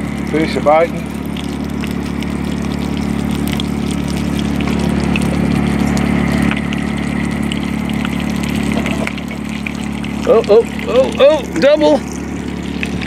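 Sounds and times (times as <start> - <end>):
motor humming: 0.0 - 13.0.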